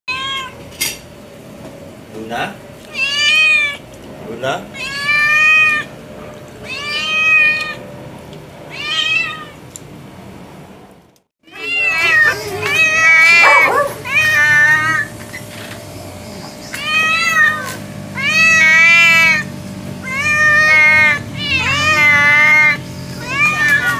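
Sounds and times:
cat meowing: 0.1 - 0.6, 2.9 - 3.8, 4.7 - 5.9, 6.6 - 7.8, 8.7 - 9.6, 11.4 - 15.1, 16.7 - 23.9.

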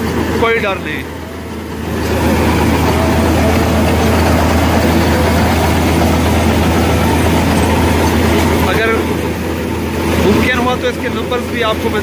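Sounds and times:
combine harvester engine hum: 0.0 - 12.0
cutter rushing rattle: 0.0 - 12.0.

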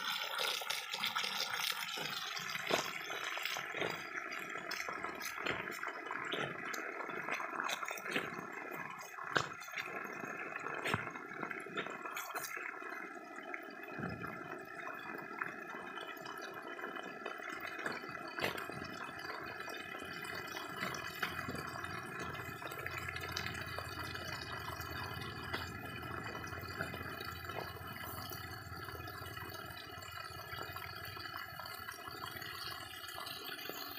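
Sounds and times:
water spraying from pipe leak: 0.0 - 13.2, 13.8 - 33.9.

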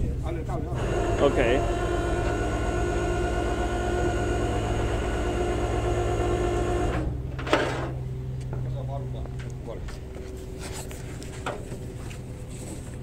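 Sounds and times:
truck engine humming: 0.0 - 13.0
hydraulic winch whine: 0.7 - 8.0.

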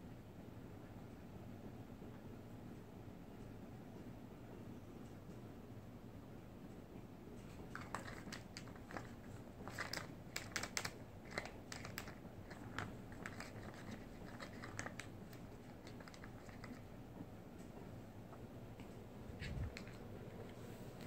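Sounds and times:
plastic ball rattling in cat toy: 7.7 - 16.9.

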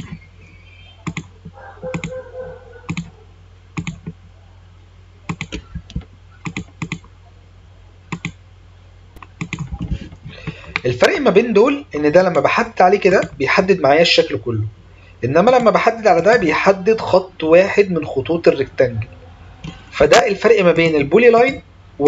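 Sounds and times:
low steady hum: 0.0 - 22.0
computer mouse clicks: 1.0 - 2.2, 2.9 - 3.1, 3.8 - 4.2, 5.3 - 7.1, 8.1 - 8.4, 9.2 - 10.8
keyboard clicks: 1.0 - 2.2, 2.9 - 3.1, 3.8 - 4.2, 5.3 - 7.1, 8.1 - 8.4, 9.2 - 10.9.

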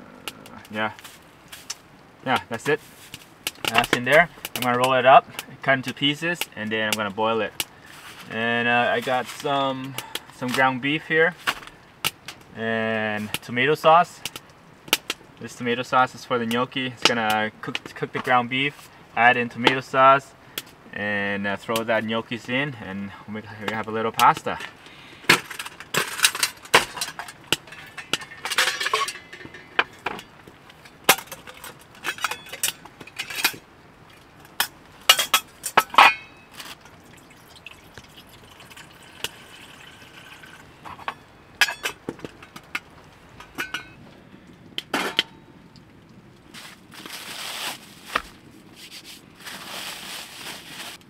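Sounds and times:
metal pot and lid clinking: 25.4 - 30.4, 31.0 - 33.6, 34.6 - 36.6, 38.7 - 42.8, 43.4 - 44.0, 44.9 - 45.4
water pouring into pot: 36.8 - 40.7
plastic wrap crinkling: 46.5 - 51.0.

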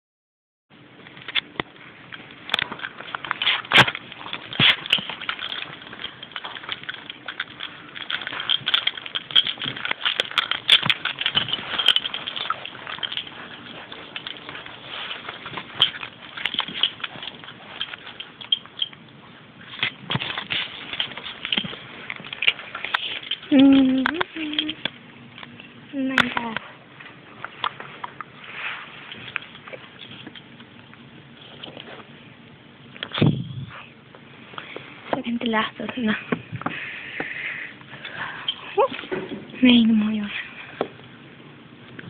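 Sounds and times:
rough rustle: 27.1 - 30.2.

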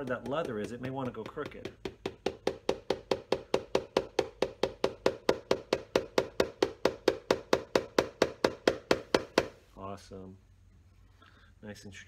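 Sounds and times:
small hammer tapping nail: 0.0 - 9.6.

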